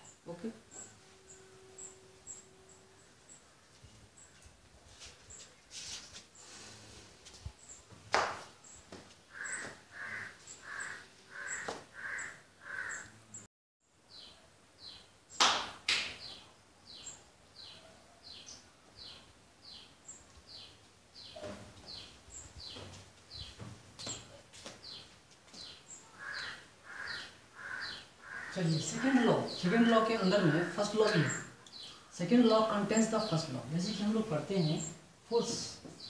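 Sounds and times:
harsh bird calls: 0:07.6 - 0:13.5, 0:14.1 - 0:36.0.

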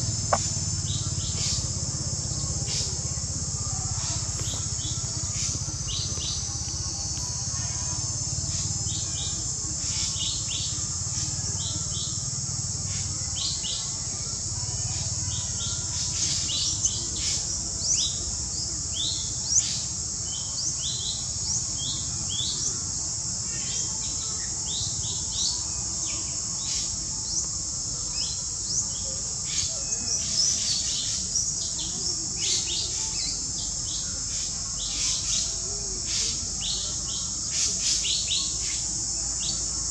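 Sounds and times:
small birds chirping: 0:00.0 - 0:09.2
steady high-pitched hiss: 0:00.0 - 0:39.9.

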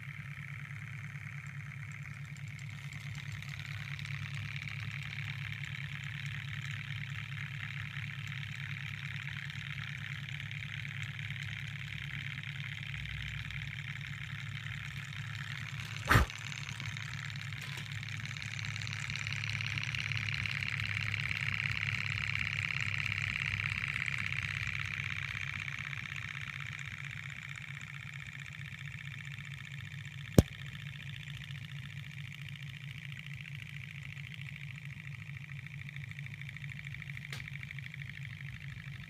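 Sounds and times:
model engine mechanical whir: 0:00.0 - 0:39.0
sharp click: 0:15.9 - 0:16.3.

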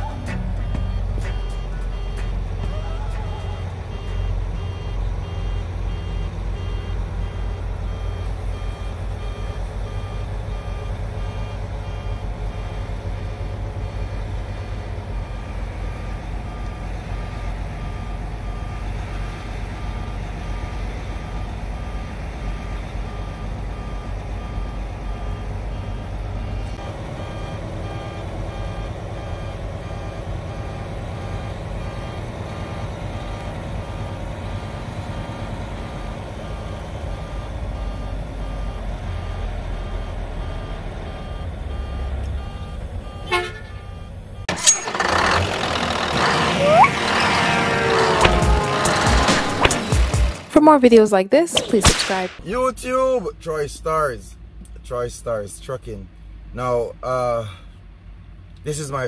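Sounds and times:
repeating electronic beep: 0:00.0 - 0:12.8, 0:46.6 - 0:47.0, 0:51.4 - 0:52.5
diesel truck engine running: 0:00.0 - 0:59.0.

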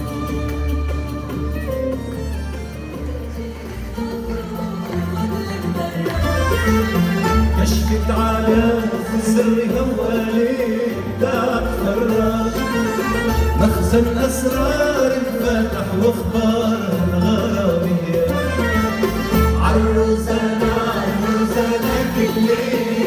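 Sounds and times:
ouds qanun and violins playing: 0:00.0 - 0:23.0
voices singing: 0:19.7 - 0:23.0.

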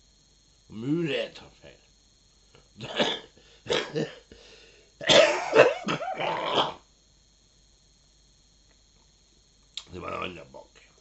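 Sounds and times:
man coughing: 0:02.8 - 0:04.3, 0:05.0 - 0:06.8.

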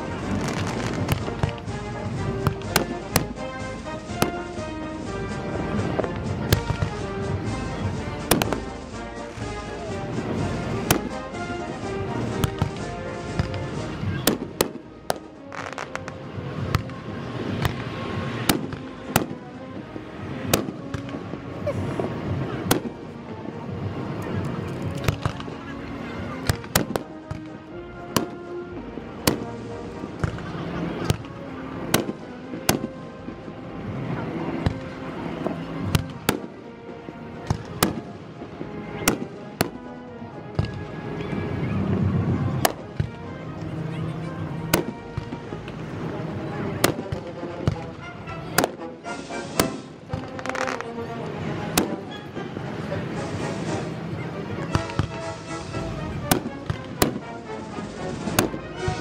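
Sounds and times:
background music: 0:00.0 - 0:59.0
fireworks bursting with sharp bangs: 0:00.0 - 0:59.0
firework shells bursting: 0:00.2 - 0:04.5, 0:48.6 - 0:50.9, 0:54.6 - 0:59.0.

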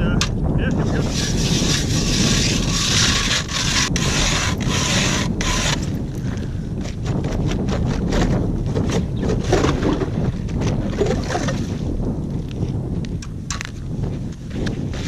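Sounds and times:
wind buffeting microphone: 0:00.0 - 0:15.0
ice auger grinding: 0:00.8 - 0:06.1.

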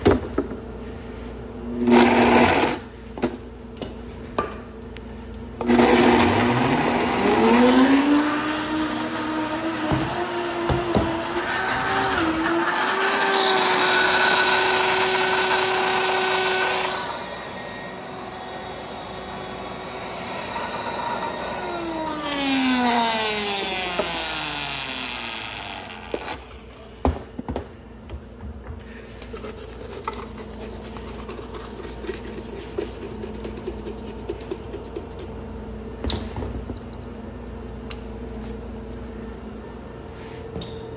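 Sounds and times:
blender running: 0:01.8 - 0:02.9, 0:05.6 - 0:26.6.

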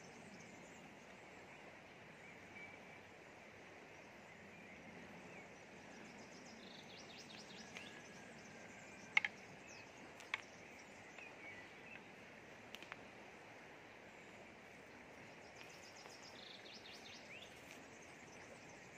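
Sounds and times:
river flowing: 0:00.0 - 0:18.9
small birds chirping: 0:03.9 - 0:13.1, 0:14.0 - 0:18.9
sharp clicks: 0:09.1 - 0:09.4, 0:12.7 - 0:13.0.

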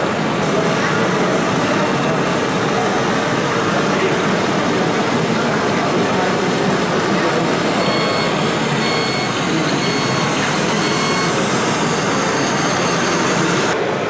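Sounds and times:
model tractors running: 0:00.2 - 0:13.8
high electronic beep: 0:07.6 - 0:13.8.

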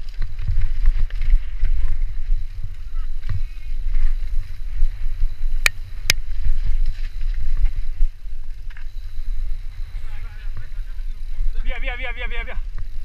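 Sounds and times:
bike rolling over rough ground: 0:00.0 - 0:13.0
wind buffeting microphone: 0:00.0 - 0:13.0
sharp bike clicks: 0:04.2 - 0:09.6.

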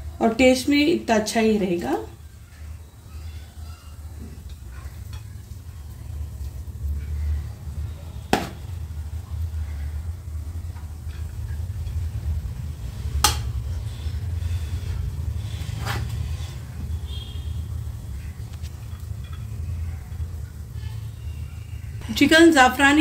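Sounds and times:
spoon scraping rice in pot: 0:13.5 - 0:16.9.

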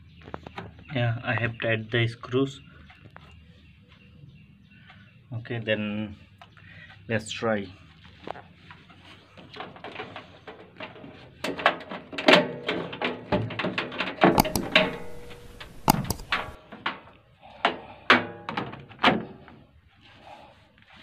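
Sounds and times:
knocks and clunks of sheet metal: 0:11.5 - 0:17.0.

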